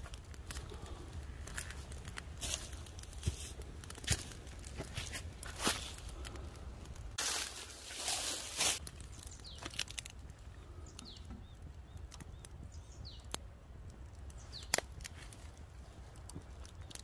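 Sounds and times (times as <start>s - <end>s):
campfire crackling and popping: 0.0s - 17.0s
bird chirping: 9.0s - 9.8s, 10.5s - 13.4s.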